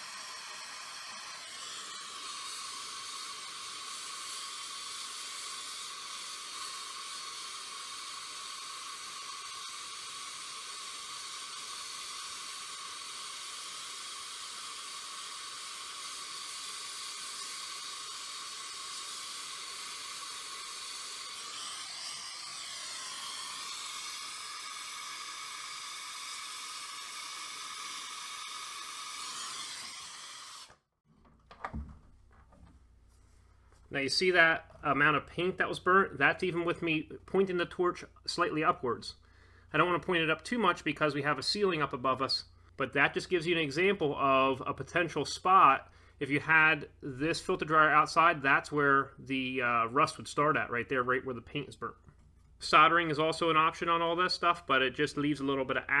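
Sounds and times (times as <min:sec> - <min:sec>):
torch flame hissing: 0:00.0 - 0:30.9.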